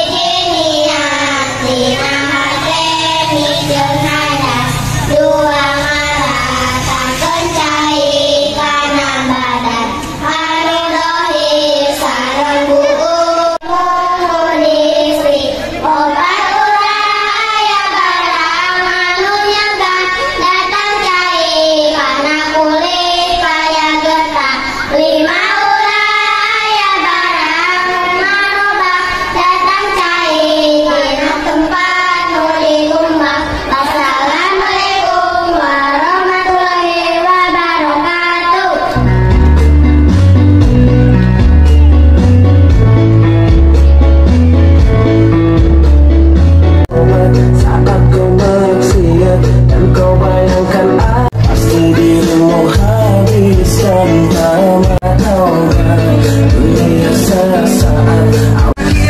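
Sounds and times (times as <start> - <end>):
children singing in unison: 0.0 - 39.1.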